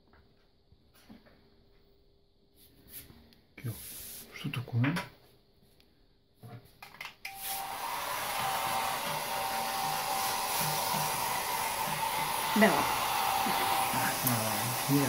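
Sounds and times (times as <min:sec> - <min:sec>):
hair dryer running: 0:07.3 - 0:15.0.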